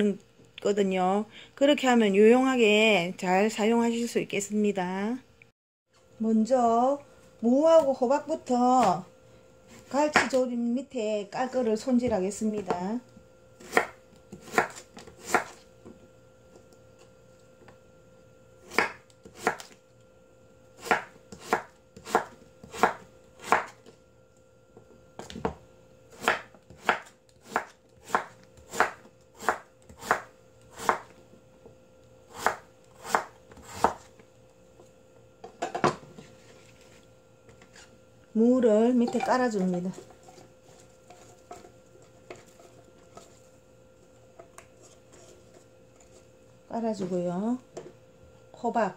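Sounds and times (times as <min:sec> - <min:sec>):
knife slicing radish: 0:13.6 - 0:15.6, 0:26.1 - 0:31.1, 0:32.3 - 0:34.1.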